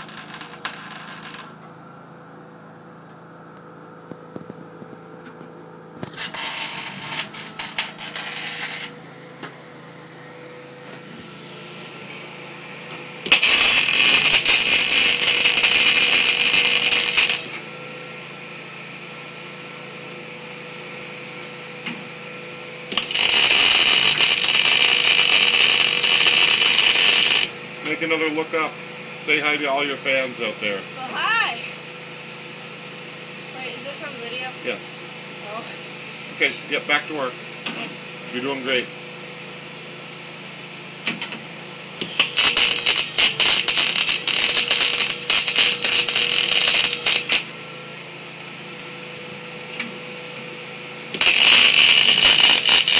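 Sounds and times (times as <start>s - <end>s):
crackling welding arc: 0.0s - 1.6s, 6.0s - 8.9s, 13.2s - 17.6s, 22.9s - 27.5s, 42.1s - 47.5s, 51.2s - 52.9s.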